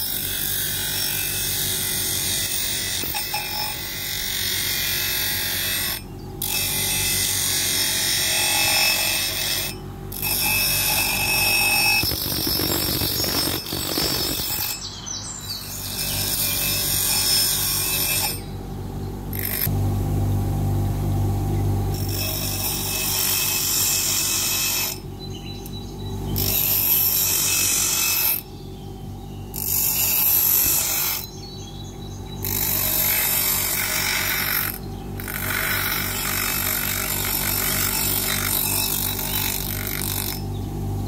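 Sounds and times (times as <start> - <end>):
bench grinder motor humming: 0.0 - 14.9, 15.7 - 25.1, 32.3 - 40.8
hissing grind of steel on wheel: 0.0 - 14.9.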